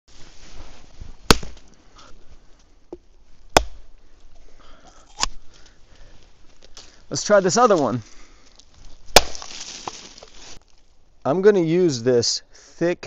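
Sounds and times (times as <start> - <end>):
coconut cracking against rock: 1.3 - 1.6, 3.5 - 3.8, 9.0 - 10.8.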